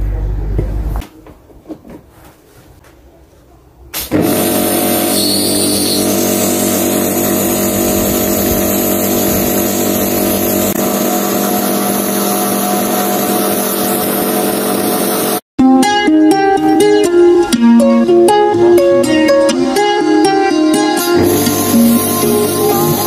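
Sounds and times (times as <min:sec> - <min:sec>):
pressure washer motor humming: 0:04.2 - 0:15.4, 0:21.1 - 0:23.0.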